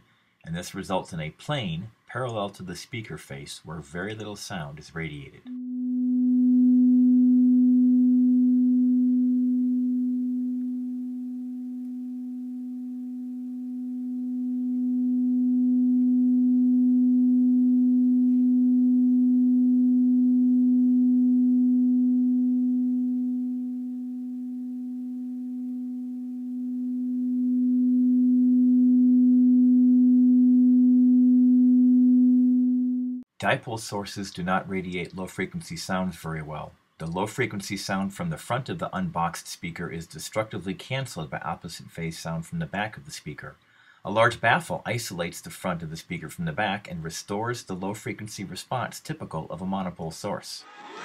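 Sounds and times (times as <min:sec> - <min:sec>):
speaker playing low pure tone: 0:05.1 - 0:31.0.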